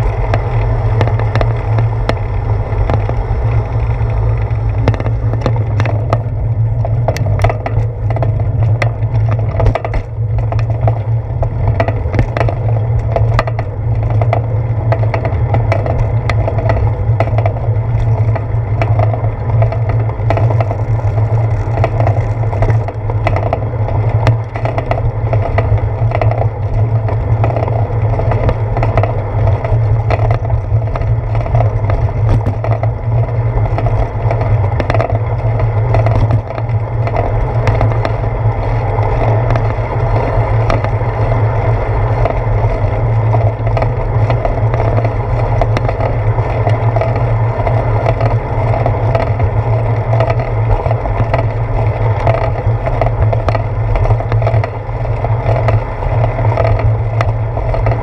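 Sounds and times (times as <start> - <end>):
bicycle rolling on wet pavement: 0.0 - 58.0
small clicks and rattles: 0.0 - 58.0.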